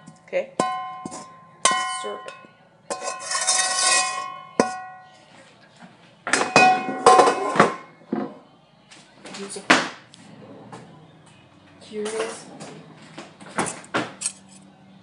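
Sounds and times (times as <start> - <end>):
frying pan knocking and ringing: 0.6 - 5.1, 6.3 - 7.9
frying pan scraping: 2.9 - 4.8.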